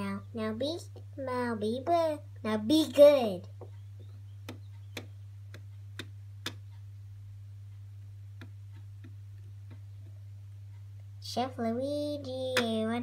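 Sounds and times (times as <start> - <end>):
steady low hum: 0.0 - 13.0
light sharp ticks: 3.6 - 6.9.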